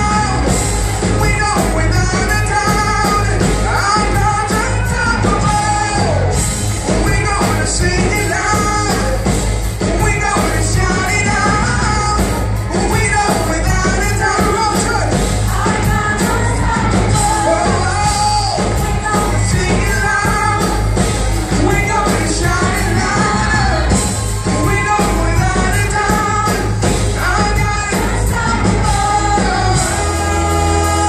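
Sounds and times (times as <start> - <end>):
rock band playing: 0.0 - 31.0
singers singing together: 12.7 - 31.0.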